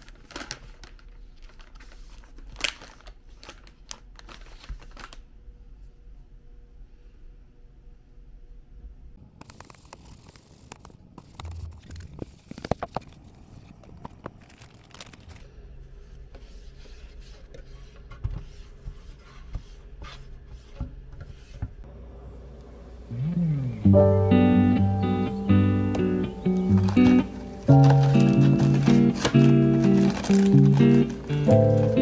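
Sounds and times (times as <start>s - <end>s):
low room hum: 0.0s - 32.0s
rubbing and scraping: 16.0s - 21.8s.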